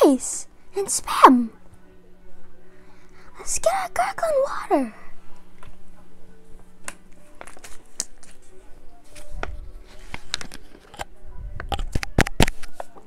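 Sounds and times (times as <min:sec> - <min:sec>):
plastic bottle crinkling: 0:10.0 - 0:11.1.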